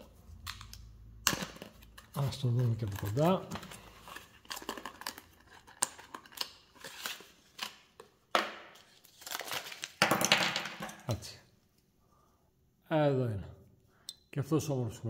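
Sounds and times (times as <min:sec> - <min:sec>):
plastic packaging clicks and crackles: 0:04.4 - 0:06.8.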